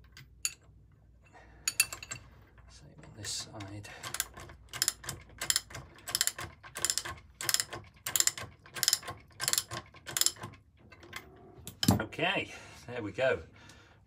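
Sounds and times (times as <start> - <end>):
socket ratchet wrench clicking: 4.1 - 10.4.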